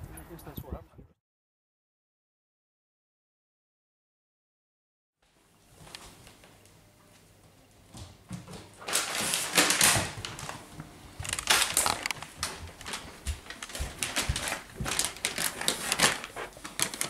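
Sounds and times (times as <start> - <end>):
plastic pouch crinkling: 8.8 - 10.6, 11.2 - 17.0.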